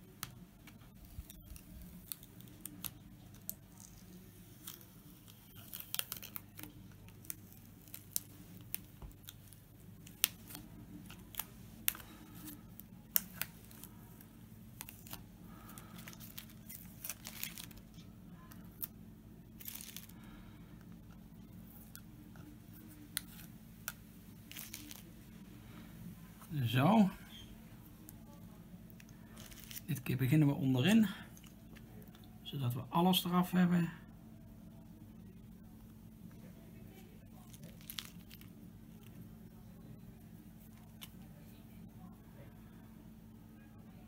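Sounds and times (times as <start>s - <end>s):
plastic film peeling and crackling: 0.0s - 25.8s, 26.4s - 32.3s, 36.9s - 39.2s
plastic film tearing: 0.9s - 14.0s, 14.8s - 18.9s, 19.5s - 20.3s, 23.2s - 25.1s, 29.3s - 30.0s, 37.4s - 38.5s.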